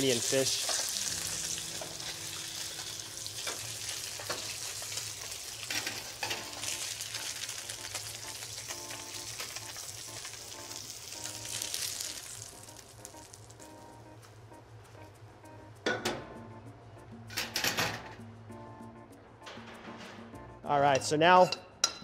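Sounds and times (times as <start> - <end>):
fish sizzling in oil: 0.0 - 13.8.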